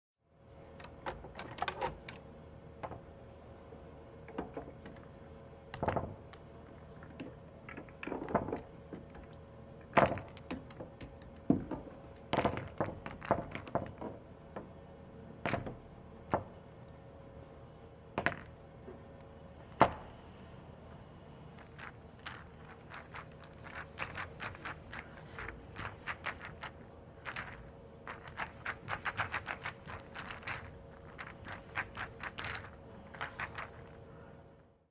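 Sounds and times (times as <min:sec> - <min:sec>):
pool balls clacking: 0:04.2 - 0:14.8, 0:18.2 - 0:19.0, 0:21.6 - 0:34.0.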